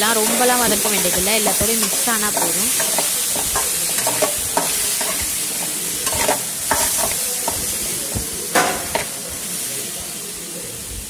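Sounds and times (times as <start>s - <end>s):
oil sizzling: 0.0s - 11.0s
spatula scraping metal pan: 0.1s - 7.8s.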